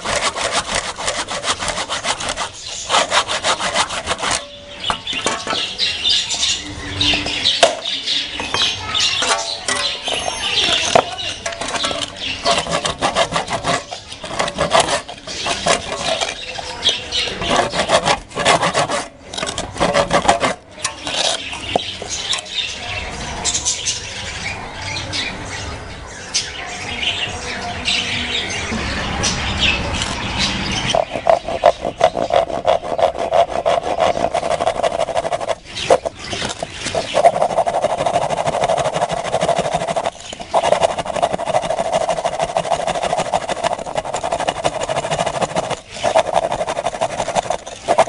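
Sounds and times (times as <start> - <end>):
hand saw cutting bamboo: 0.0 - 4.5, 11.6 - 21.7, 31.0 - 48.0.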